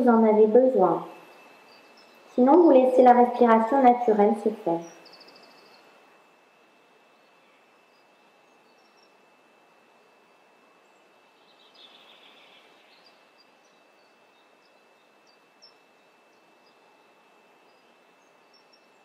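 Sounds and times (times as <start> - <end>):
faint hiss: 0.0 - 19.0
faint bird chirps: 1.0 - 2.5, 4.8 - 6.0, 7.1 - 9.4, 10.8 - 19.0.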